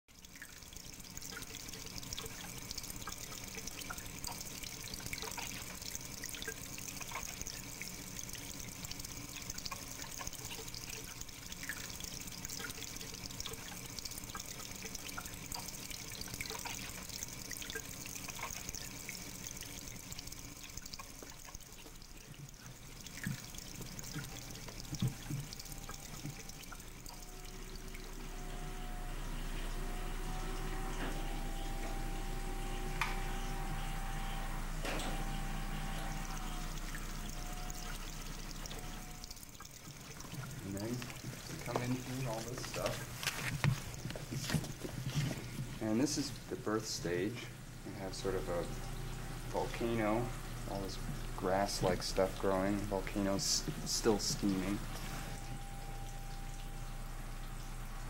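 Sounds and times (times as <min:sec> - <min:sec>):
water trickling and dripping: 0:00.1 - 0:58.0.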